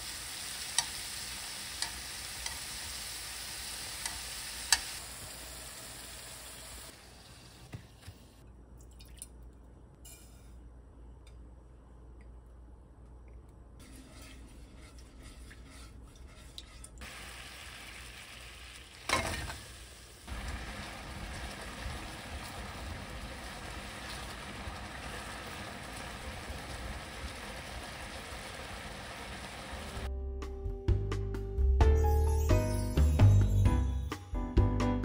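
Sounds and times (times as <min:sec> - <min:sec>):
sizzling: 0:00.0 - 0:08.4, 0:13.8 - 0:30.1
spatula stirring: 0:13.8 - 0:17.1.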